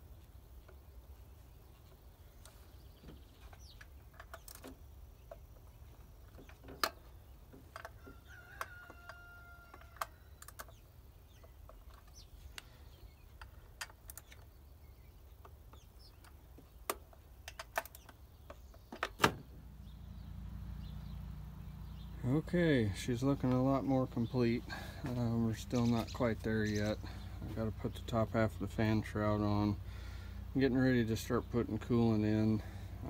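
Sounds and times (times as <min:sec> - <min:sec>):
tool clicks on metal parts: 0:16.2 - 0:18.2.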